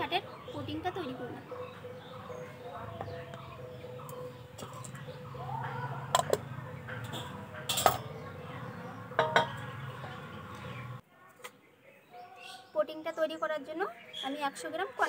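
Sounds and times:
brass plate set down on wood: 0:09.2 - 0:09.6.

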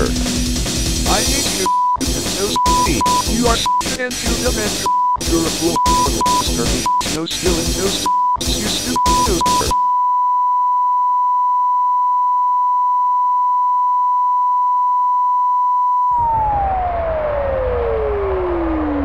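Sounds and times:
electronic music chopped by beeps: 0:00.0 - 0:09.8
steady pure beep tone: 0:01.6 - 0:03.9, 0:04.9 - 0:07.1, 0:08.0 - 0:16.1.

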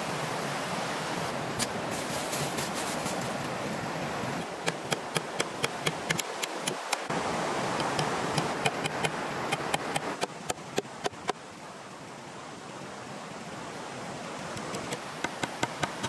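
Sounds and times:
river water rushing: 0:00.0 - 0:16.0
axe chopping bamboo: 0:14.6 - 0:16.0.

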